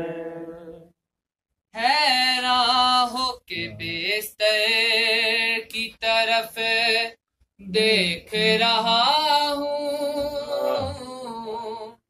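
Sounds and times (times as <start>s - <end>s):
man singing unaccompanied: 3.3s - 7.2s, 7.8s - 9.6s.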